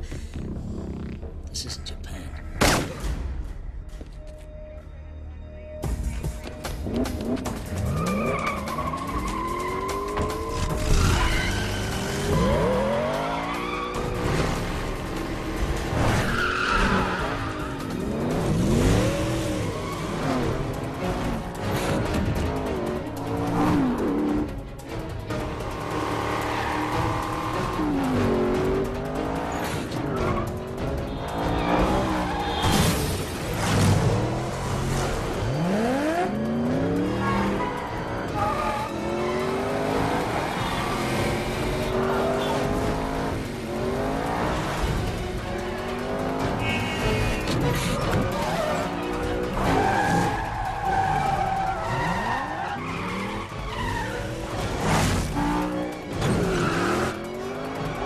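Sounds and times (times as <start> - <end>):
dramatic score music: 0.0 - 58.0
car engines revving: 6.7 - 58.0
tyres squealing: 46.6 - 58.0.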